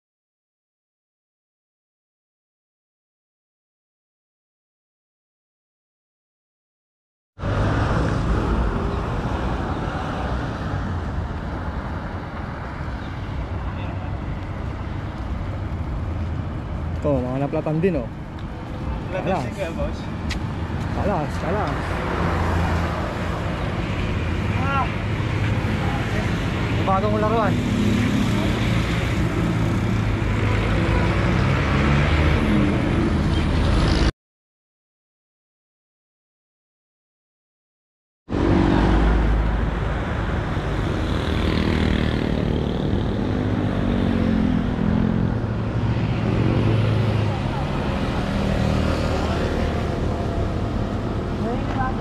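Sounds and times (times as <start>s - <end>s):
highway traffic rumble: 7.4s - 34.1s, 38.3s - 52.0s.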